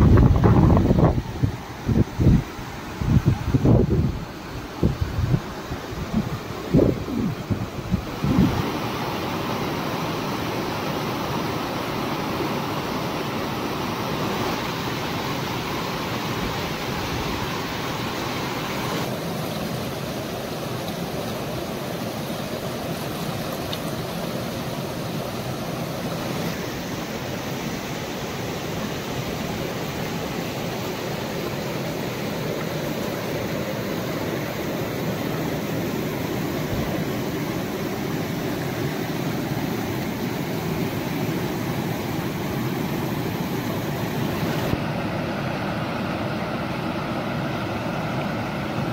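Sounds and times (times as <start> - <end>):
floodwater rushing over rocks: 0.0 - 48.9.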